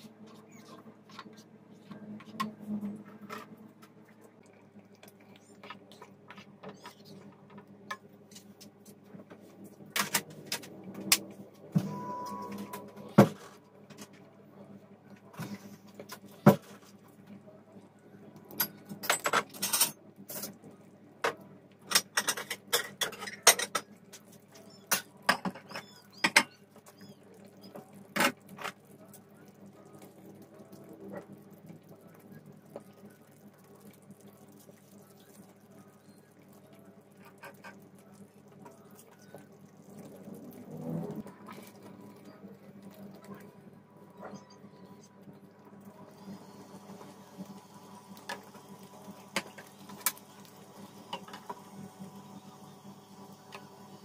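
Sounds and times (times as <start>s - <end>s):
faint steady hum: 0.0s - 54.0s
utensils clinking against pots: 21.9s - 23.9s.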